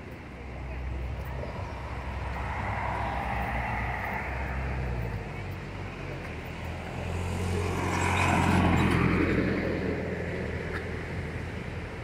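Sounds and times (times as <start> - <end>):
vehicle passing by: 1.6 - 5.5, 6.5 - 10.2.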